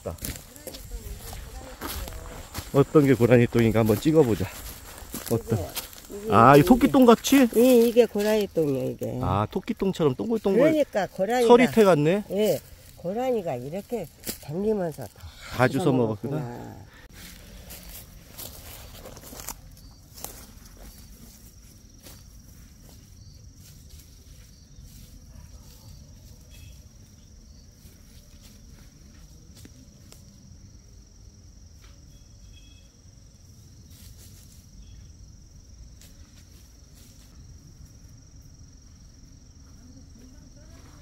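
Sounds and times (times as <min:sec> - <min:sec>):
footsteps in dry leaves: 0:00.0 - 0:15.2, 0:17.1 - 0:27.0
high-pitched insect trill: 0:00.0 - 0:41.0.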